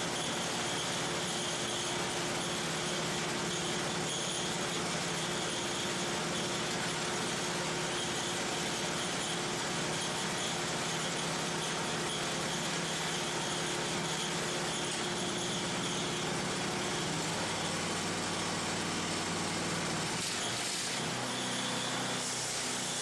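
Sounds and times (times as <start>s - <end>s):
gasoline engine running: 14.0s - 20.3s.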